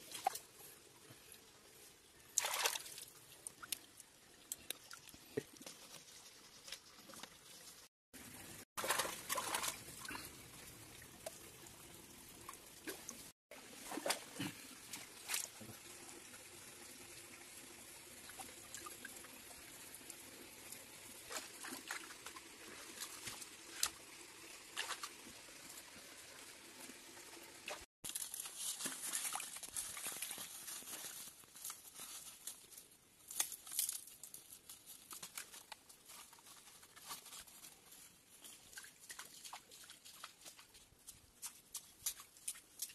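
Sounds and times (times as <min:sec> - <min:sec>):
stream water trickling over rocks: 0:00.0 - 0:42.9
splashes in water and mud: 0:02.3 - 0:03.9, 0:08.7 - 0:10.3, 0:12.5 - 0:15.7, 0:21.2 - 0:24.0, 0:27.7 - 0:30.7, 0:38.4 - 0:42.9.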